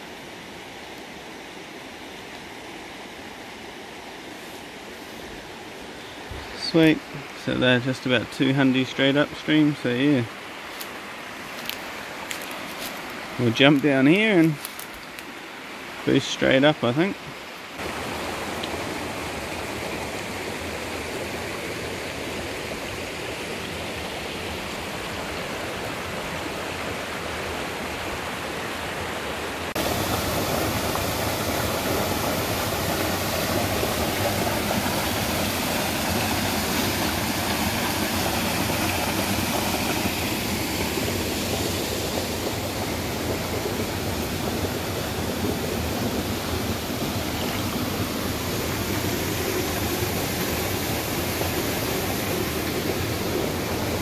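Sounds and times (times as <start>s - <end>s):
stream rushing over rocks: 0.0s - 54.0s.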